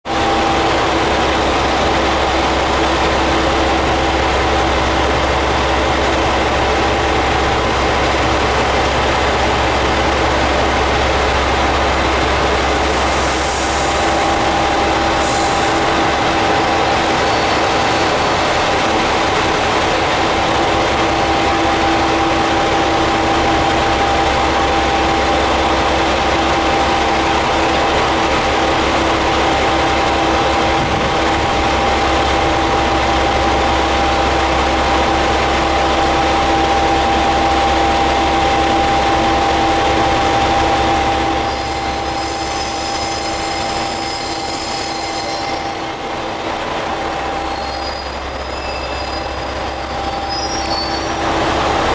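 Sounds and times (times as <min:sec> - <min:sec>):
diesel engine idling: 0:00.1 - 0:51.9
air hissing: 0:12.8 - 0:16.0.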